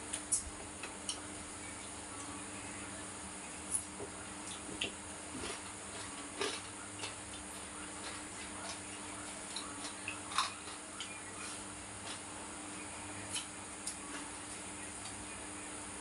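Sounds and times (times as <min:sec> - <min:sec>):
steady low hum: 0:00.0 - 0:16.0
chewing: 0:03.7 - 0:12.4, 0:13.2 - 0:15.2.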